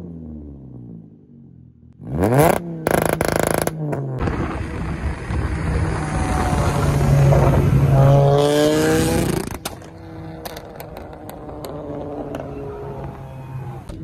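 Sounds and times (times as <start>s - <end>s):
car engine accelerating hard: 4.7s - 13.9s
exhaust pops and crackles: 9.2s - 13.2s.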